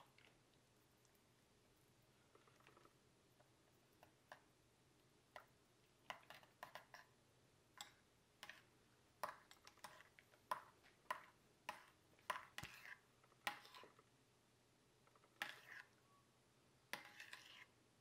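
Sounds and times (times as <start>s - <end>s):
metal spoon scraping ceramic bowl: 6.1s - 7.2s, 7.8s - 14.0s, 15.2s - 16.0s, 16.9s - 17.8s.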